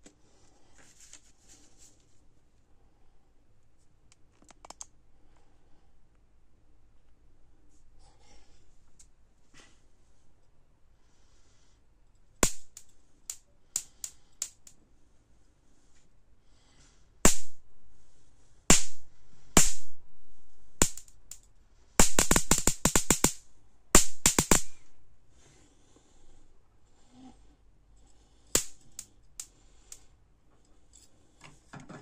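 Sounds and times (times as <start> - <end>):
electric sparks snapping: 12.4 - 14.7, 17.3 - 17.6, 18.7 - 19.0, 19.6 - 19.9, 20.8 - 21.4, 22.0 - 23.4, 24.0 - 24.9, 28.5 - 29.1.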